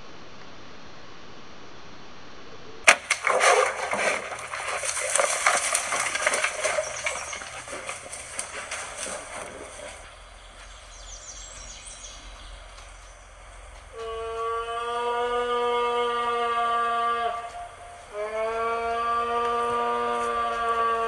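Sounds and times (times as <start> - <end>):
crashing through brush: 2.9 - 11.0.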